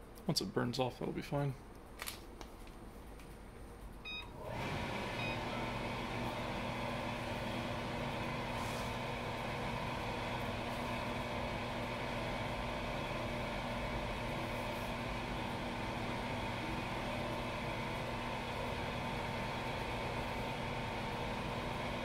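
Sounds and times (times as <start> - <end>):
electric fan humming: 0.0 - 22.0
short electronic beep: 4.1 - 4.3.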